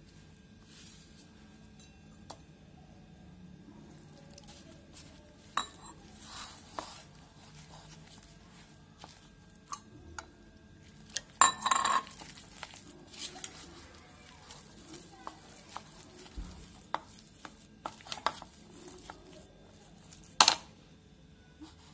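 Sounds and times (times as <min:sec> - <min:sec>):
spatula scraping plastic bowl: 0:12.0 - 0:19.4.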